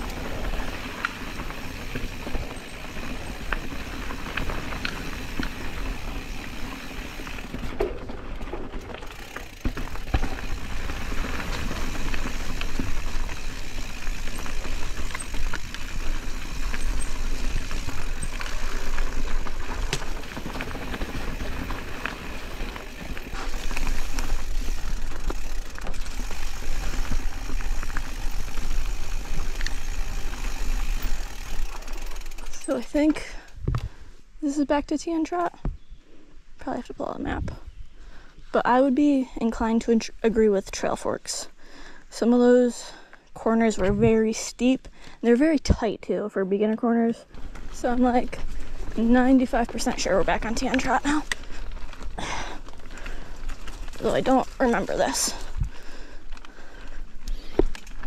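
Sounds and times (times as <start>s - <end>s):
bike rattling and knocking: 0.0s - 33.9s, 47.3s - 58.0s
bike tyres rolling over dirt: 0.0s - 58.0s.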